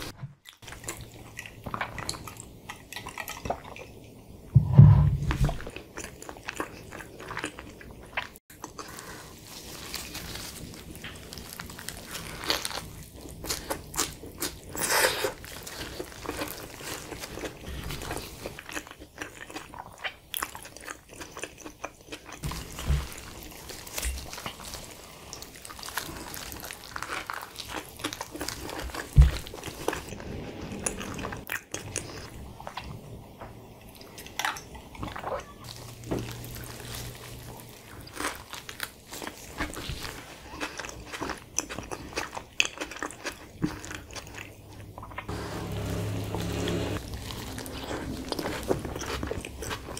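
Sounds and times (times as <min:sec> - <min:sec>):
low thumps: 0:04.6 - 0:05.6
chewing a wrap: 0:05.4 - 0:30.2, 0:30.8 - 0:33.0, 0:33.7 - 0:49.9.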